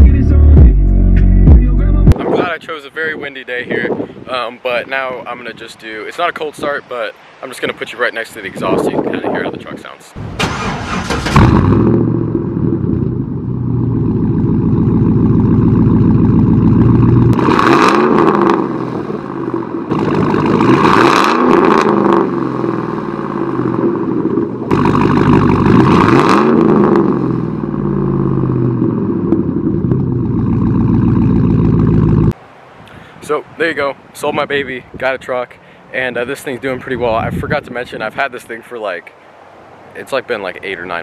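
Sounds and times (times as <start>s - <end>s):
engine revving: 10.2s - 32.4s
pickup truck exhaust idling: 11.4s - 17.5s, 18.1s - 20.9s, 21.6s - 32.4s.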